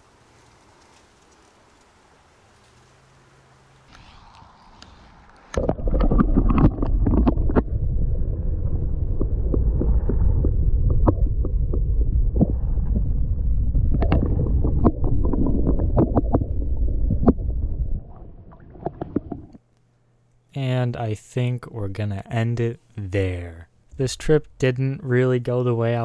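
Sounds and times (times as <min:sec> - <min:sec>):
muffled underwater rumble: 0:03.9 - 0:19.6.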